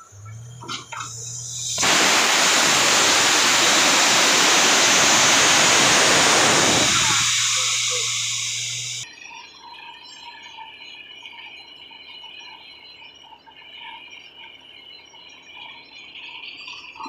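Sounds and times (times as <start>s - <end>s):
drilling rig engine hum: 0.0s - 9.0s
compressed air rushing hiss: 0.9s - 9.0s.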